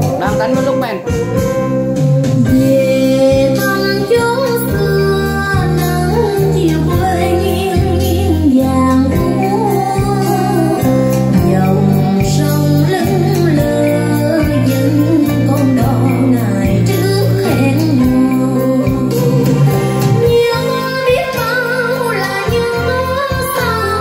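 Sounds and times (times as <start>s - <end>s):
regular beat: 0.0s - 3.6s, 13.6s - 21.4s
song with singing voice: 0.0s - 24.0s
held bass notes: 6.4s - 24.0s.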